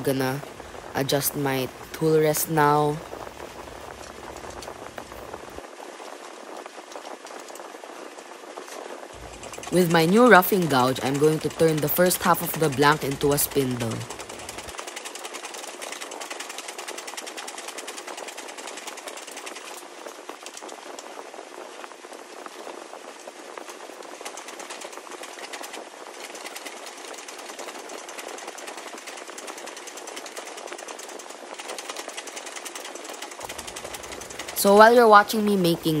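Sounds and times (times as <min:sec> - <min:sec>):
gouge chattering on turning wood: 0:09.2 - 0:19.8, 0:24.2 - 0:35.0.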